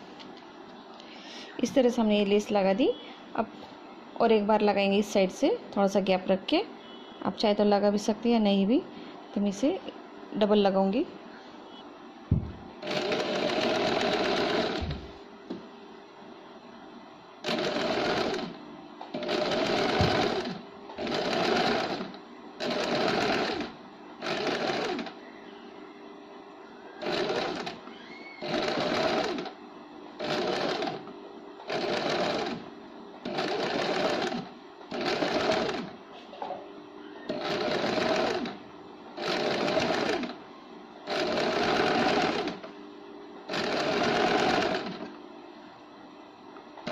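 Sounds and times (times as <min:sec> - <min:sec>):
sewing machine stitching: 0:12.8 - 0:15.0, 0:17.4 - 0:25.2, 0:27.0 - 0:27.8, 0:28.4 - 0:29.6, 0:30.2 - 0:32.6, 0:33.2 - 0:35.9, 0:37.3 - 0:38.6, 0:39.2 - 0:40.4, 0:41.1 - 0:42.7, 0:43.5 - 0:45.1.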